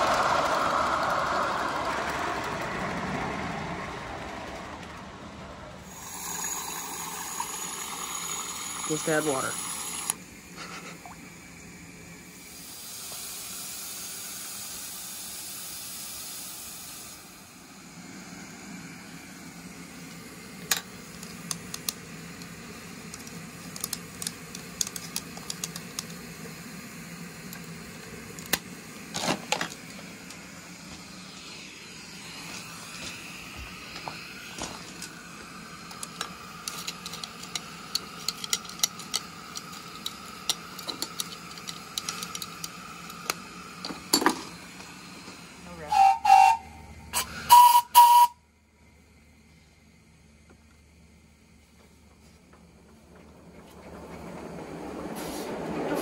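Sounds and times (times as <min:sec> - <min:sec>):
train clicking: 0:00.0 - 0:10.8, 0:12.8 - 0:48.4, 0:51.4 - 0:56.0
steam locomotive hissing: 0:00.0 - 0:48.4, 0:51.0 - 0:56.0.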